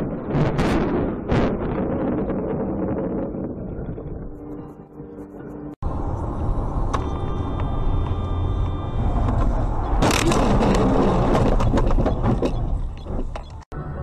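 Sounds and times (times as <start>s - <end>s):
road and engine rumble: 3.2s - 14.0s.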